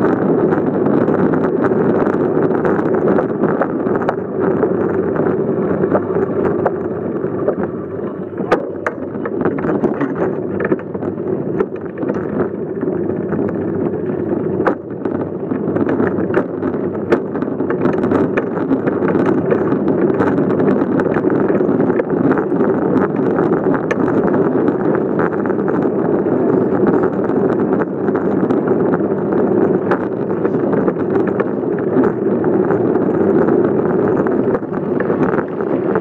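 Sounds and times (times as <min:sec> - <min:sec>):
bicycle ride rumble: 0:00.0 - 0:36.0
bike clicks and rattles: 0:00.0 - 0:36.0
wind rushing over microphone: 0:00.0 - 0:36.0.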